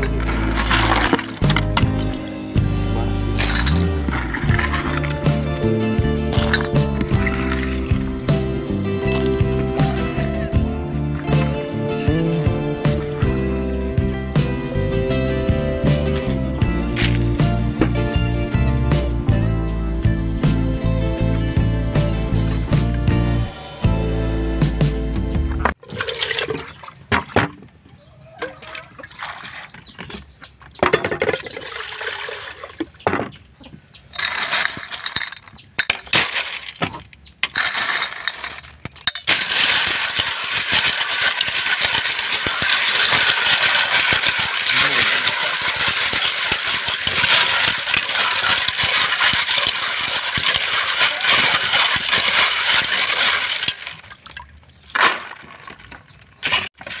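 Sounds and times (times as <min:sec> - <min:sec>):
shells rattling and swishing in water: 0:00.0 - 0:02.3, 0:03.3 - 0:10.2, 0:11.1 - 0:13.1, 0:16.9 - 0:17.5, 0:34.1 - 0:57.0
snail shells clinking in pot: 0:03.4 - 0:05.2, 0:06.3 - 0:08.2, 0:09.0 - 0:09.6, 0:34.1 - 0:54.3.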